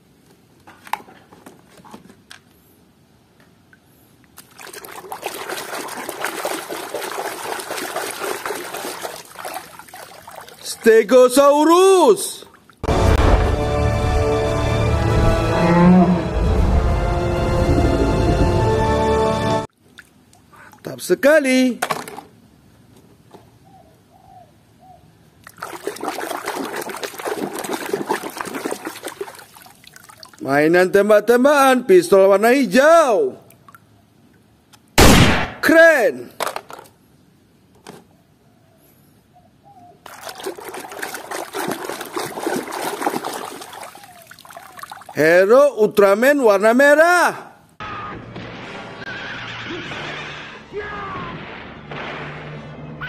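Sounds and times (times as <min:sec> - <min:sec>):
toy scrubbed in water splashing: 0:04.4 - 0:10.8, 0:25.5 - 0:30.4, 0:40.0 - 0:45.2.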